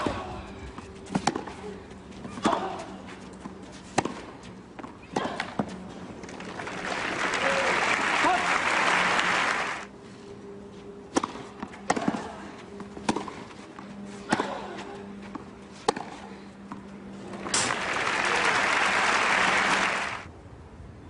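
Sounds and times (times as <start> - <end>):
crowd applauding: 6.2 - 9.9, 17.4 - 20.3
racquet striking tennis ball: 11.1 - 12.2, 13.0 - 13.4, 14.3 - 14.7, 15.3 - 16.2.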